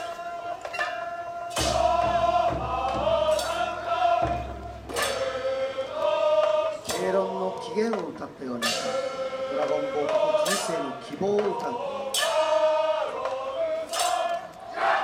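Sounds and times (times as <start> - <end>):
men singing in unison: 0.0 - 15.0
struck percussion hits: 1.5 - 7.4.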